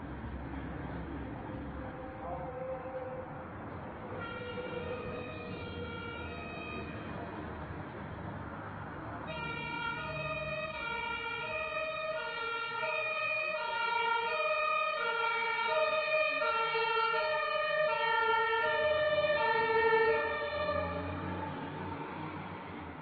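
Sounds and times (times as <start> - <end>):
two-tone emergency siren: 4.1 - 7.2, 9.2 - 22.8.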